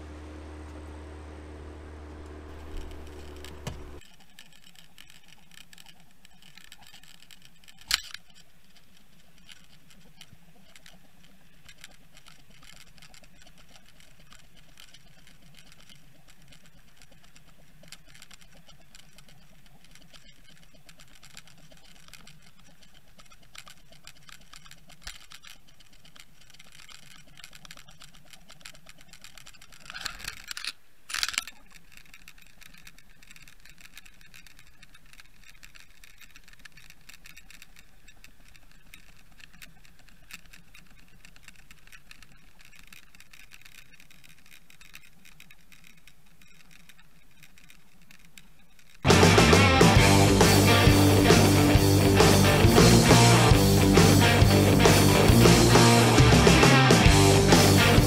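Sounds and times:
underwater water noise: 0:00.0 - 0:49.0
small clicks: 0:02.0 - 0:58.0
sharp knocks: 0:02.5 - 0:04.0.

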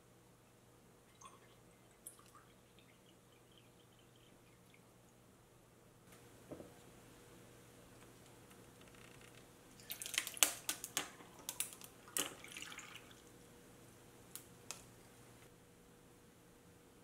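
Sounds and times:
tea pouring: 0:01.1 - 0:05.2, 0:09.8 - 0:10.4, 0:11.2 - 0:13.3.

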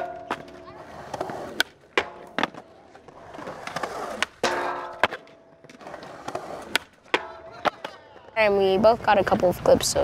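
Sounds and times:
skateboard grinding on metal rail: 0:00.0 - 0:07.9
skateboard hard landing: 0:00.0 - 0:08.0
skateboard clacks: 0:00.0 - 0:08.5
skateboard rolling on concrete: 0:00.0 - 0:10.0.

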